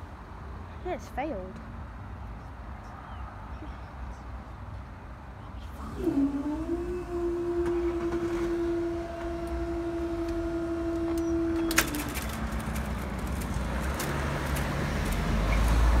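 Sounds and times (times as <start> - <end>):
low rumble of road traffic: 0.0 - 16.0
hydraulic pump motor humming: 5.8 - 16.0.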